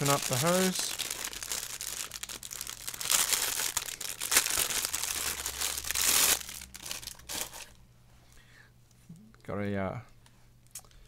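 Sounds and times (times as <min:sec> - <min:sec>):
plastic bag crinkling and rustling: 0:00.0 - 0:07.8.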